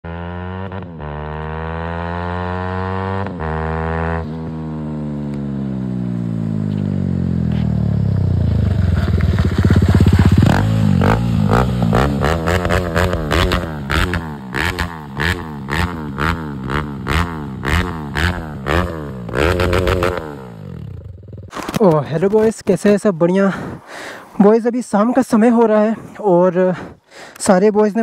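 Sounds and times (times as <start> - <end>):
motorcycle engine accelerating: 0.0 - 21.7
motorcycle throttle blips: 3.1 - 21.8.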